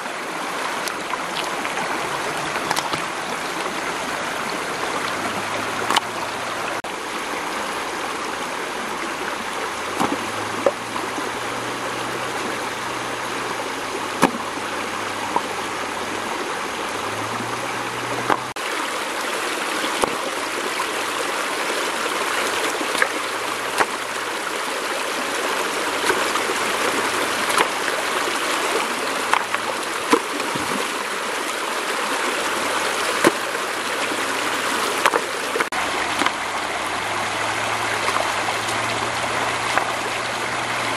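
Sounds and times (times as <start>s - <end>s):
stream rushing over rocks: 0.0s - 40.9s
stones knocking in water: 0.8s - 3.8s, 5.0s - 6.2s, 9.9s - 11.0s, 14.2s - 14.6s, 18.2s - 18.6s, 19.9s - 20.4s, 22.9s - 24.1s, 26.0s - 27.9s, 29.2s - 31.0s, 33.1s - 33.6s, 34.9s - 36.4s, 39.6s - 40.0s.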